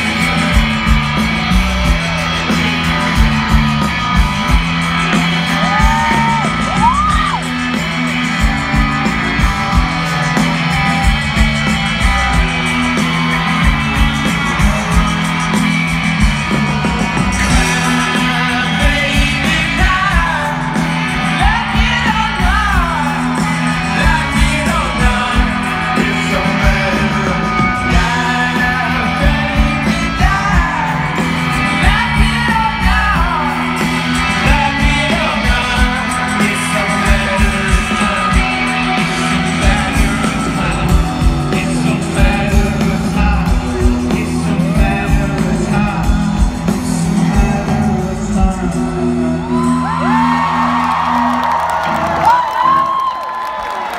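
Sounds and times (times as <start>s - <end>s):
steady drum beat: 0.0s - 53.5s
bass guitar: 0.0s - 53.9s
electric guitars: 0.0s - 53.9s
person singing: 16.5s - 53.2s.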